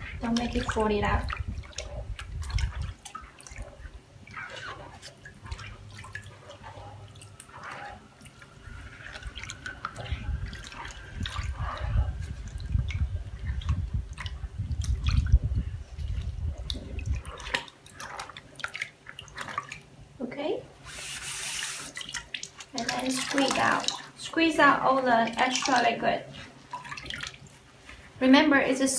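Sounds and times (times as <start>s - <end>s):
liquid dripping and splashing: 0.0s - 20.2s, 20.8s - 28.1s
low rumble: 6.8s - 17.4s.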